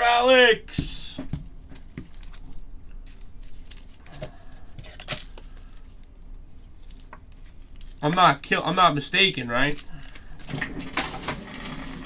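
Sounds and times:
soft rustling of cards: 0:01.3 - 0:10.5.

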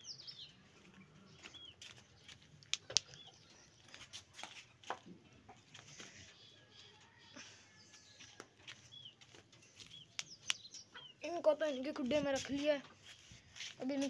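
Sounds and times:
chickens clucking: 0:00.5 - 0:11.3
sharp clicks: 0:02.6 - 0:03.3, 0:10.1 - 0:10.8.

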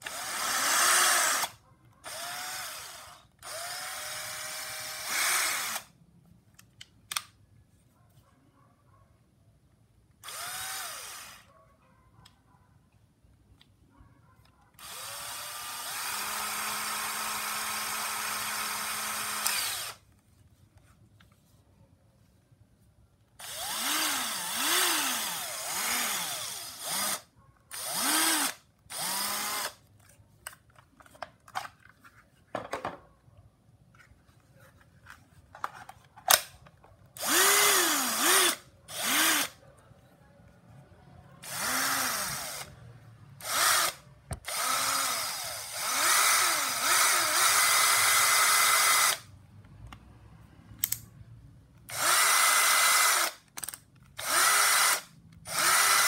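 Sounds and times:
cordless drill motor whirring: 0:00.0 - 0:05.9, 0:10.2 - 0:11.5, 0:14.8 - 0:20.0, 0:23.4 - 0:29.8, 0:37.2 - 0:39.6, 0:41.4 - 0:42.8, 0:43.4 - 0:49.3, 0:51.9 - 0:56.0.

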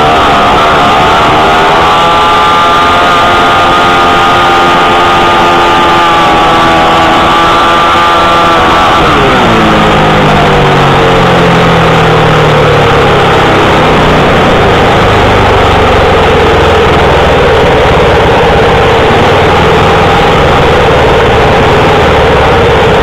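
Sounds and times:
racing motorcycle engine: 0:00.0 - 0:23.0
wind rush: 0:00.0 - 0:23.0.

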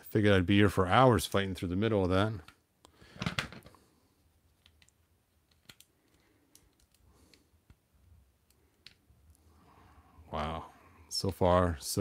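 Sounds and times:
plastic figure clicking: 0:04.6 - 0:07.0.

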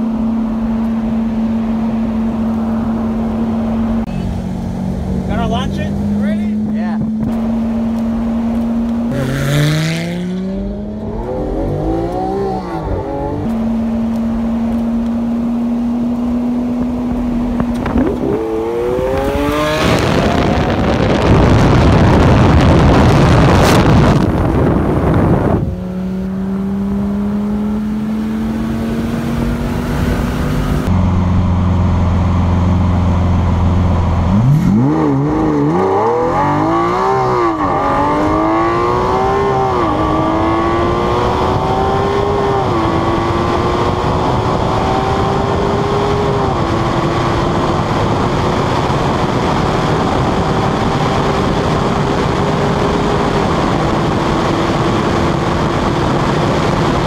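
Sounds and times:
car engine revving: 0:00.0 - 0:57.0
rushing wind noise: 0:00.0 - 0:57.0.

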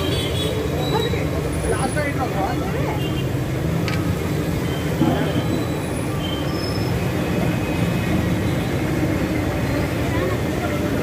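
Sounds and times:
faint voices: 0:09.0 - 0:11.0.

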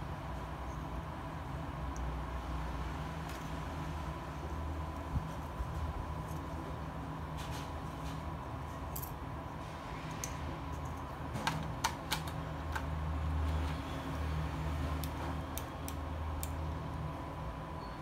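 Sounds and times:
steady low hum: 0:00.0 - 0:18.0
pens clicking and tapping in case: 0:10.8 - 0:13.0.

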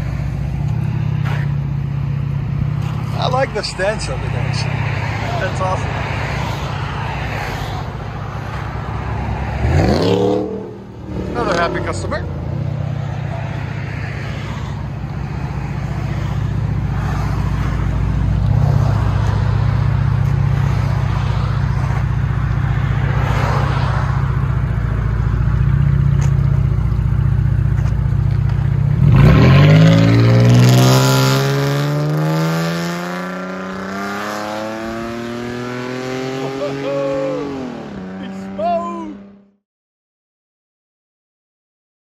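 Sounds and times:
car engine idling: 0:00.0 - 0:09.6, 0:10.6 - 0:29.1
car accelerating: 0:00.0 - 0:39.6.

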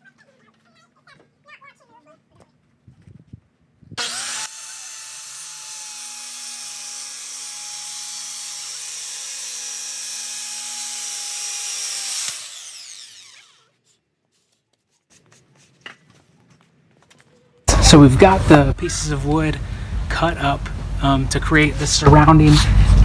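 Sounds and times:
circular saw cutting wood: 0:04.0 - 0:13.9.

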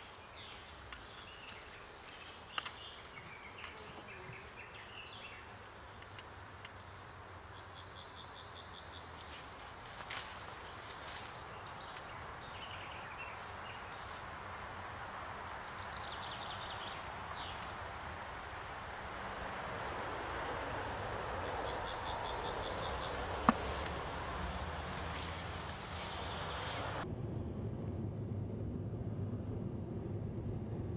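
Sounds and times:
honeybees buzzing: 0:00.0 - 0:07.4, 0:21.5 - 0:27.0
birds chirping: 0:00.0 - 0:18.2, 0:20.0 - 0:27.0.

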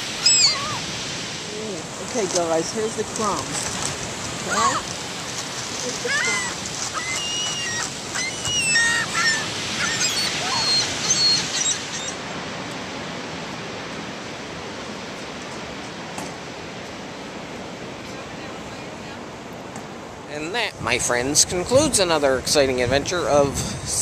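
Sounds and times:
gulls calling: 0:00.0 - 0:02.1, 0:03.4 - 0:12.4
breeze: 0:00.0 - 0:21.0
surf hiss: 0:00.0 - 0:24.0.

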